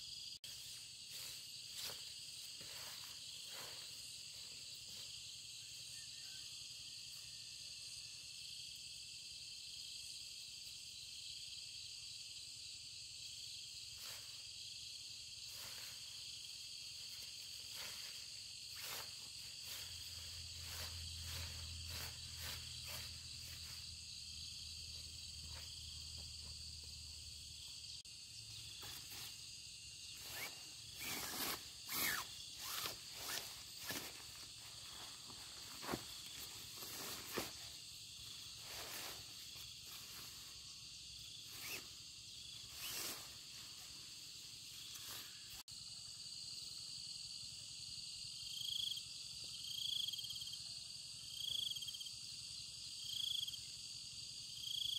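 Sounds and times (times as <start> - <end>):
high insect chorus: 0.0 - 54.9
nylon tent rustling: 30.2 - 40.6, 41.5 - 41.9, 42.7 - 44.0.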